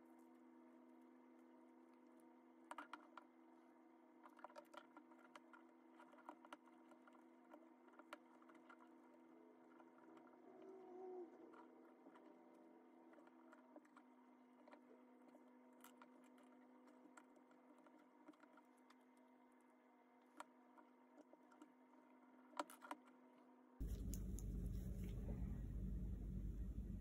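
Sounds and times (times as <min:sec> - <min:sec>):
faint steady hum: 0:23.6 - 0:27.0
loud low noise: 0:23.8 - 0:27.0.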